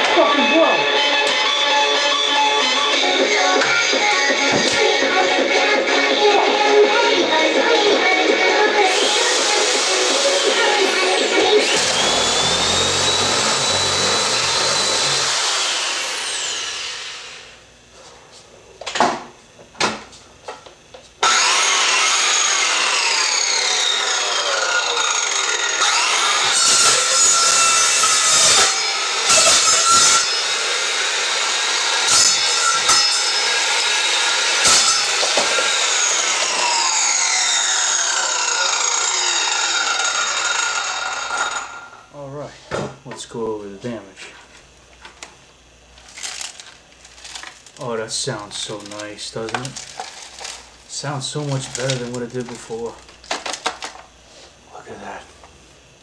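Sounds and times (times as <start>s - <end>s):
electric drill boring into plastic: 8.1s - 17.6s, 21.2s - 42.0s, 48.5s - 50.7s, 51.4s - 54.0s
circular saw cutting plastic: 8.7s - 17.5s, 21.2s - 41.9s, 46.0s - 53.7s.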